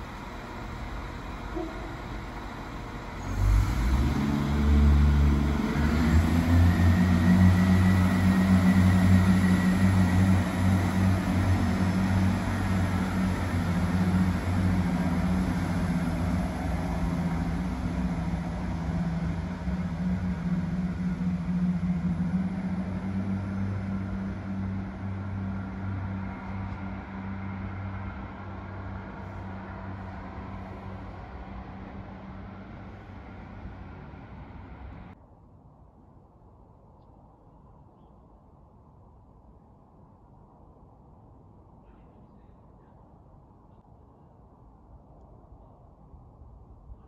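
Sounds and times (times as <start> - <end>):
diesel train engine pulling away: 0.0 - 35.2.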